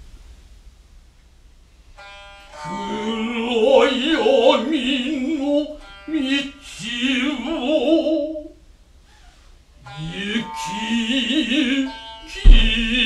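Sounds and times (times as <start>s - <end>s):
person chanting with vibrato: 2.6s - 8.6s, 9.9s - 13.0s
biwa struck: 12.4s - 13.0s.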